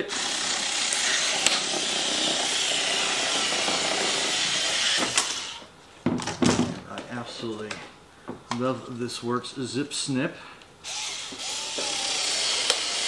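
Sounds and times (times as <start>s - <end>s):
electric cutter cutting plastic: 0.0s - 5.7s, 10.8s - 13.0s.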